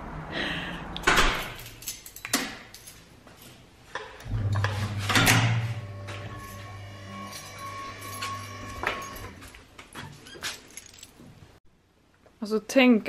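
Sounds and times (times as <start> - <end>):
low steady hum: 4.2 - 9.3.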